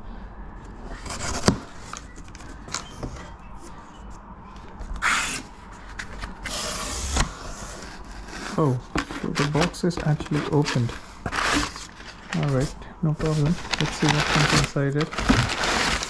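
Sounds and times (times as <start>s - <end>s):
cardboard scraping and rustling: 0.8s - 3.3s, 4.6s - 16.0s
knife cutting cardboard box: 0.9s - 2.0s, 6.4s - 16.0s.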